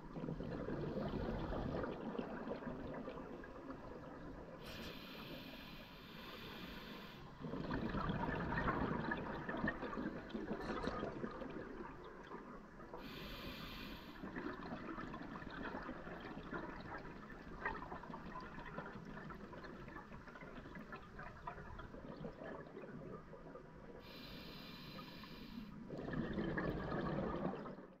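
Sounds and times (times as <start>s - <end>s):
exhaled bubbles rushing underwater: 0.0s - 4.6s, 7.4s - 13.3s, 14.2s - 24.4s, 25.8s - 28.0s
regulator hissing inhalations: 4.6s - 7.3s, 13.0s - 14.2s, 24.0s - 25.7s.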